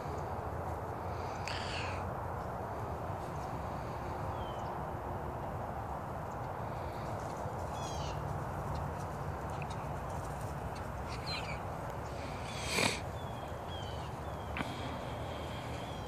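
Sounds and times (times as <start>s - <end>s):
outdoor background noise: 0.0s - 16.0s
birds chirping: 4.2s - 4.8s, 6.2s - 16.0s.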